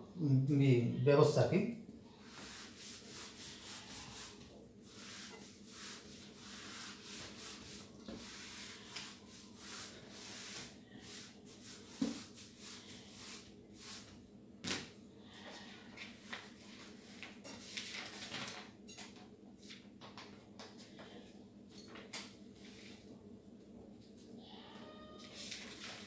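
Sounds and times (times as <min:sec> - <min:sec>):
eraser rubbing on whiteboard: 0:02.2 - 0:14.1.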